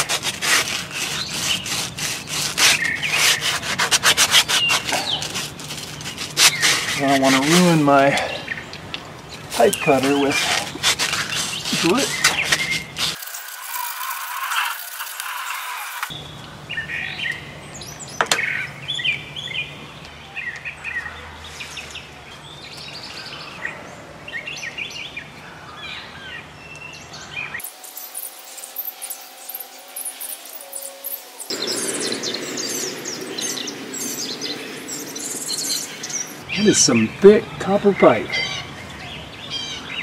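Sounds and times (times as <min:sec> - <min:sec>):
pipe cutter scraping: 0:00.0 - 0:07.9, 0:09.5 - 0:16.1
birds chirping: 0:04.3 - 0:13.2, 0:14.8 - 0:40.0.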